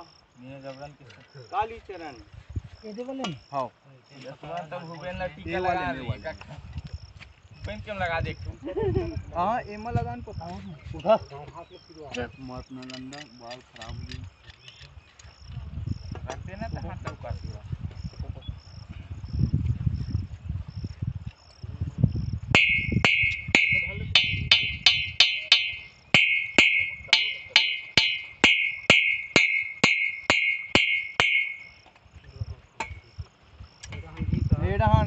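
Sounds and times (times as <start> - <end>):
insect chirping: 0.0 - 35.0
hammer striking metal: 22.6 - 31.8.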